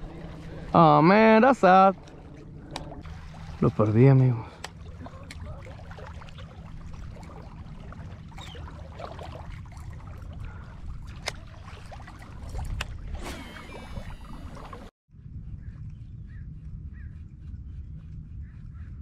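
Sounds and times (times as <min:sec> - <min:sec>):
water at lakeshore: 0:00.0 - 0:15.0
wind rumble: 0:00.0 - 0:19.0.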